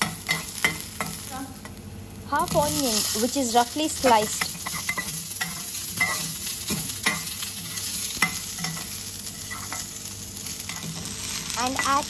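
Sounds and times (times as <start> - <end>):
food sizzling in oil: 0.0 - 12.0
metal spoon scraping a pan: 4.4 - 9.9.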